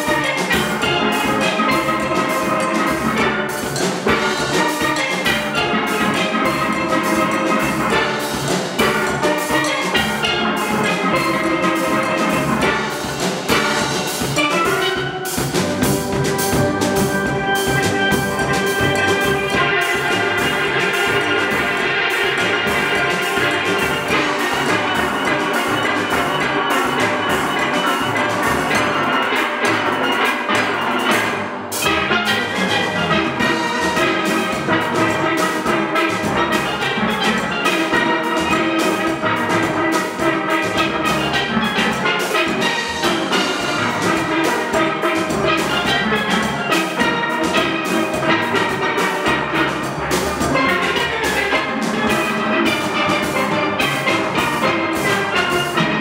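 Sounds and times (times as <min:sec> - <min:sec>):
drum kit beat: 0:00.0 - 0:56.0
steel pan ensemble playing: 0:00.0 - 0:56.0.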